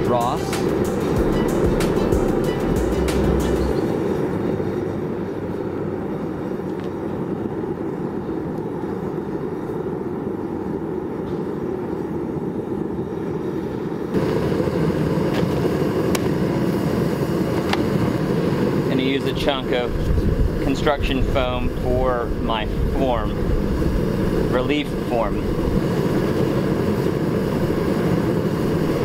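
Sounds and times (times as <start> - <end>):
propane burner rushing: 0.0 - 29.0.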